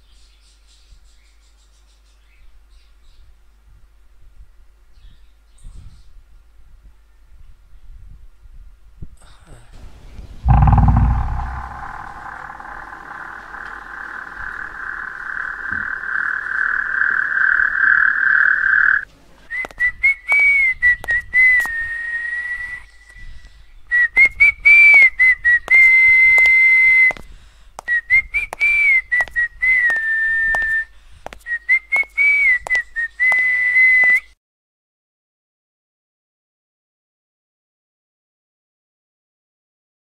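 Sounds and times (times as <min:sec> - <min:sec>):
steady pulsing tone: 0:10.4 - 0:18.2
whistled tune: 0:23.9 - 0:27.2, 0:27.9 - 0:30.9, 0:31.5 - 0:34.4.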